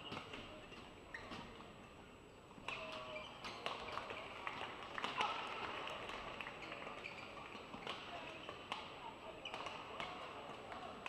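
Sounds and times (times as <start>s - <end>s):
crowd clapping: 3.9s - 7.6s.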